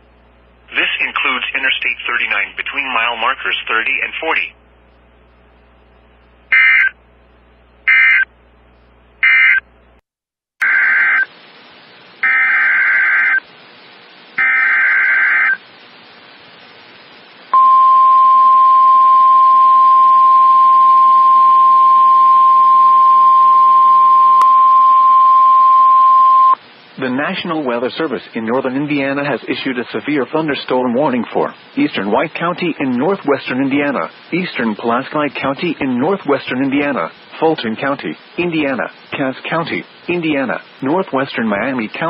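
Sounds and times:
steady warning alarm tone: 12.2 - 13.4, 14.4 - 15.6
screeching digital data bursts: 12.2 - 13.5, 14.4 - 15.6.

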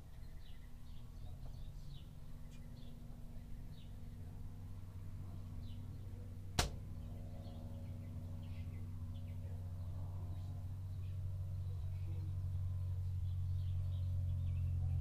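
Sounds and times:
steady low hum: 0.0 - 15.0
sharp click: 6.6 - 6.8.

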